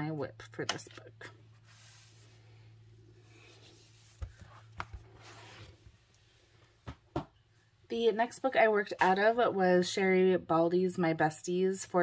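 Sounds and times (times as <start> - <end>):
book sliding across wooden desk: 1.6 - 2.4, 3.2 - 5.8.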